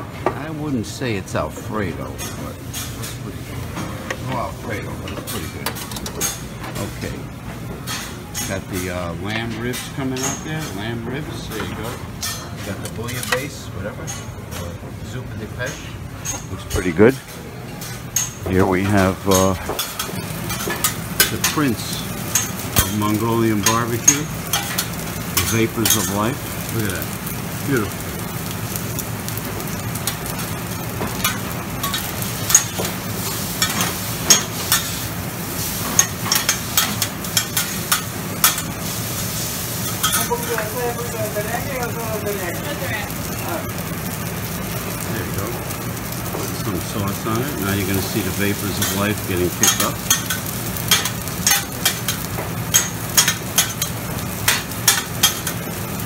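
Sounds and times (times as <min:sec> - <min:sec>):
noodles sizzling on griddle: 0:15.0 - 0:56.0.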